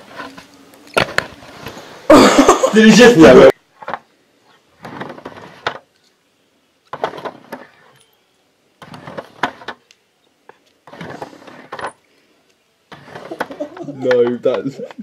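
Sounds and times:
toy wheels rolling on a ramp: 4.8s - 5.9s, 6.9s - 8.1s, 8.8s - 9.9s, 10.6s - 12.0s, 12.9s - 14.9s.

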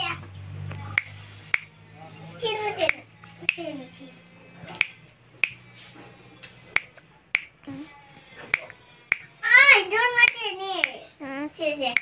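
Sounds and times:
fingers snapping: 0.7s - 1.7s, 2.8s - 3.7s, 4.7s - 5.7s, 6.7s - 7.6s, 8.5s - 9.3s, 10.2s - 11.0s
high-pitched voice: 11.2s - 12.0s.

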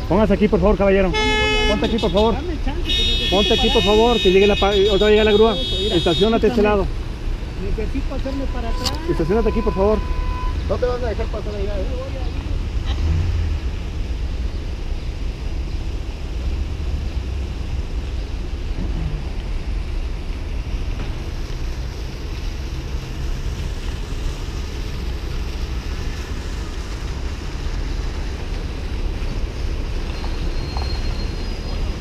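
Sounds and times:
vehicle and street noise: 0.0s - 32.0s.

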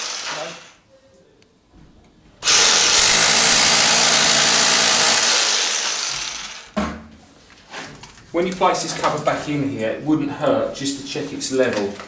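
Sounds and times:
power drill boring into brick: 0.0s - 0.8s, 2.4s - 6.8s.

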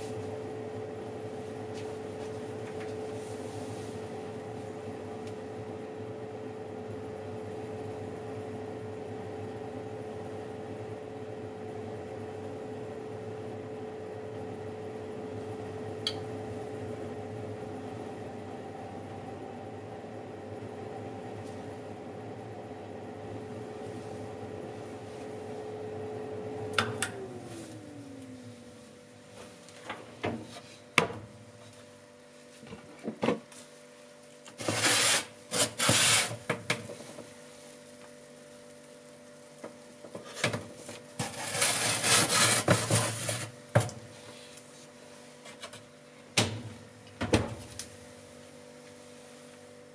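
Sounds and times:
oven hum winding down: 0.0s - 33.1s, 34.2s - 49.9s
baking tray scraping: 34.6s - 36.5s, 41.2s - 43.6s.

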